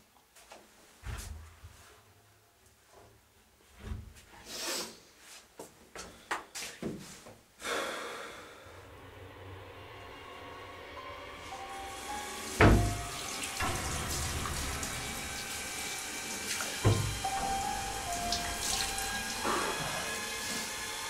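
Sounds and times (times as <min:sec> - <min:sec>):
faint sustained music tones: 0:08.6 - 0:21.0
tap running into sink: 0:12.6 - 0:19.3
water splashing: 0:12.6 - 0:20.7.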